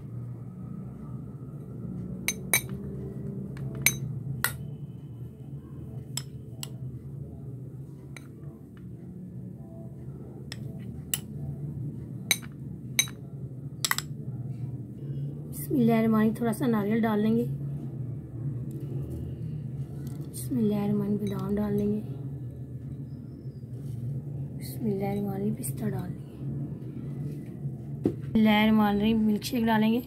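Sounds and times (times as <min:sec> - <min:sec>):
low steady hum: 0:00.0 - 0:30.0
spoon clinking against glass: 0:02.3 - 0:02.8, 0:03.8 - 0:04.6, 0:12.3 - 0:13.2.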